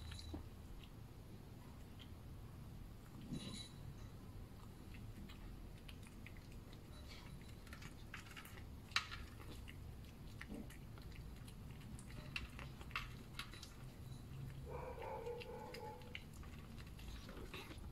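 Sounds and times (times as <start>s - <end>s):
cat chewing wet food: 4.0s - 17.9s.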